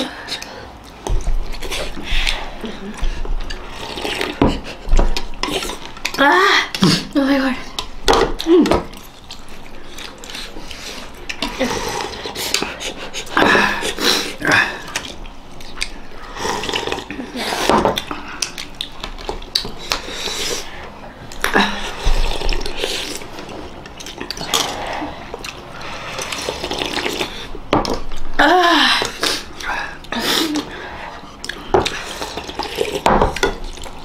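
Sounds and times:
mouth and breathing noises: 0:00.0 - 0:06.0, 0:09.3 - 0:27.7
people slurping soup: 0:00.3 - 0:06.0, 0:09.4 - 0:27.6, 0:29.0 - 0:34.0.

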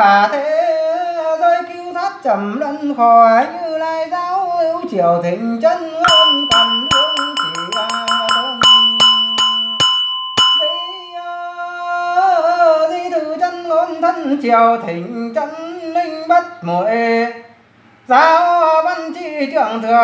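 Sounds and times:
man chanting: 0:00.0 - 0:09.9, 0:10.6 - 0:17.5, 0:18.1 - 0:20.0
small metal bell struck: 0:06.0 - 0:11.4.

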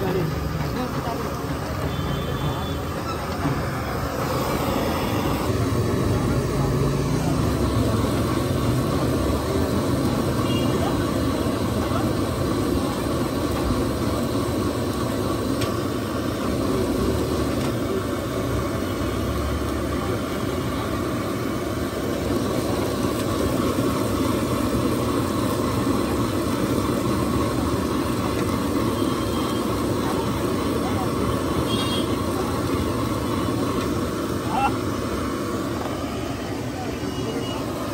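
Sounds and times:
gas burner roaring: 0:00.0 - 0:37.9.

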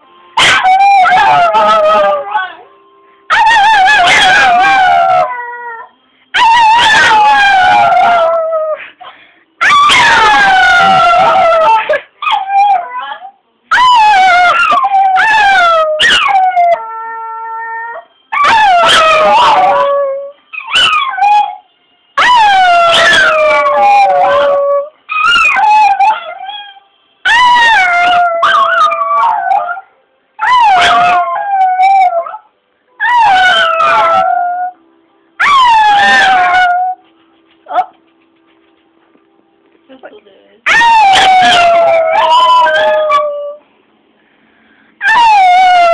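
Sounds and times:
small dog howling: 0:00.4 - 0:02.6, 0:03.3 - 0:08.8, 0:09.6 - 0:21.6, 0:22.2 - 0:29.8, 0:30.4 - 0:32.4, 0:33.0 - 0:34.8, 0:35.4 - 0:37.0, 0:40.7 - 0:43.6, 0:45.0 - 0:45.9.

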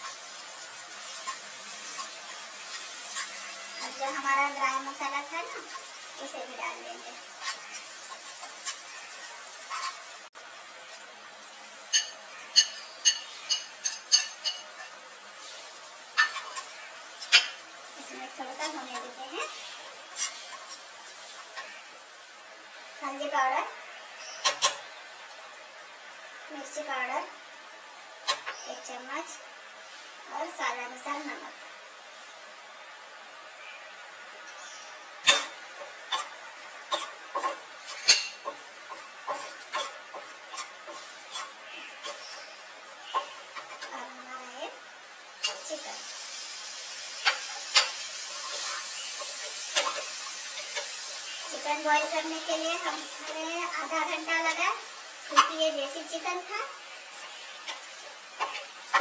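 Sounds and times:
spoon scraping a pan: 0:00.0 - 0:10.3, 0:11.9 - 0:21.9, 0:24.2 - 0:24.9, 0:28.2 - 0:28.8, 0:34.5 - 0:44.3, 0:45.4 - 0:59.0.

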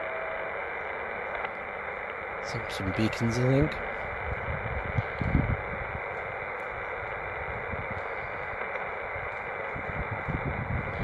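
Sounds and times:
radio band noise hiss: 0:00.0 - 0:11.0
wind rumble on microphone: 0:03.6 - 0:11.0.

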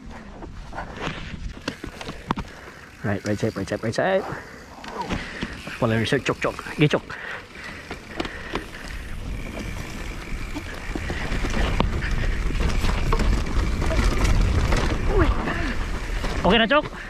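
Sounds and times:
bike tyres clicking and knocking: 0:00.2 - 0:17.0.

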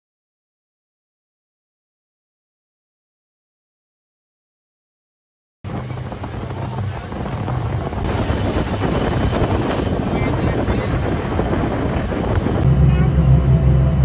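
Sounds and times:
motorboat engine running: 0:05.7 - 0:14.0
water rushing: 0:05.7 - 0:14.0
wind rushing: 0:05.7 - 0:14.0.

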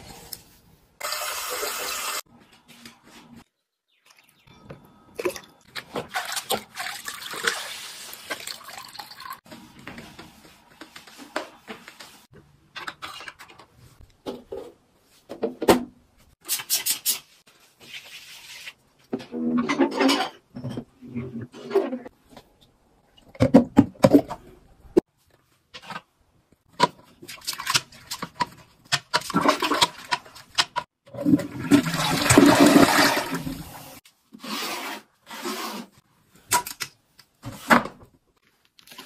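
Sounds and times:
water sloshing and dripping: 0:05.2 - 0:09.5.

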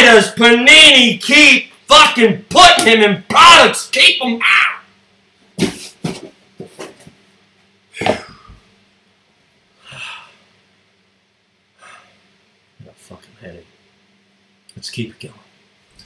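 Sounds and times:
cardboard box knocks and rustles: 0:05.6 - 0:07.1.

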